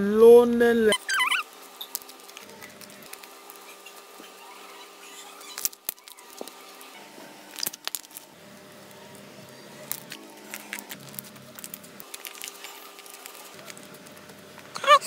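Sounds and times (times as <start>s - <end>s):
sticky slime clicks and crackles: 7.5s - 8.2s, 9.9s - 14.2s.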